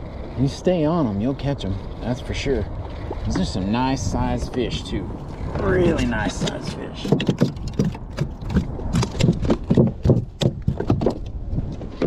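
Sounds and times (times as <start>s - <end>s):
fish flopping on plastic hull: 6.3s - 12.0s.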